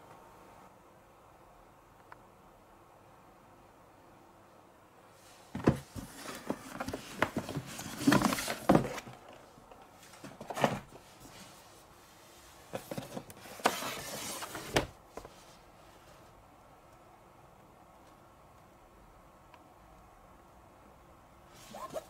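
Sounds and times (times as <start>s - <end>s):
cardboard packaging rustling: 5.5s - 11.6s, 12.5s - 15.3s.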